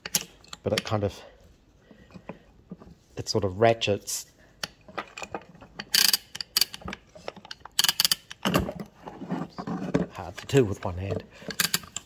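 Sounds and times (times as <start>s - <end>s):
starter ratchet clicking and rasping: 7.5s - 8.4s, 11.4s - 12.0s.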